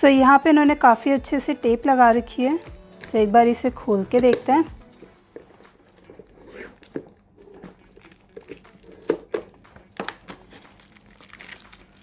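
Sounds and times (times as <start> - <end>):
thin plastic crinkling: 5.4 - 12.0
tape peeling off plastic: 10.0 - 12.0.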